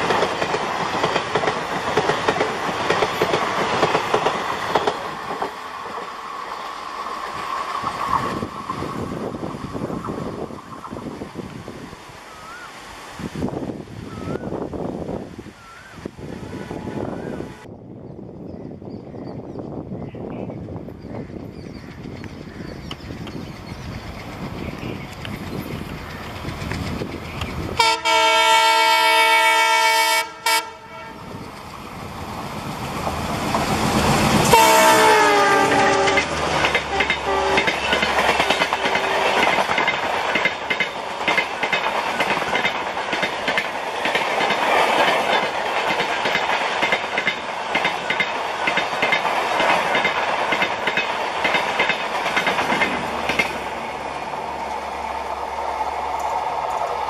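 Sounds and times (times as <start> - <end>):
train wheels clickety-clack: 0.0 - 6.2, 21.3 - 28.6, 31.4 - 54.4
locomotive horn blasts: 27.8 - 31.4, 34.5 - 37.9.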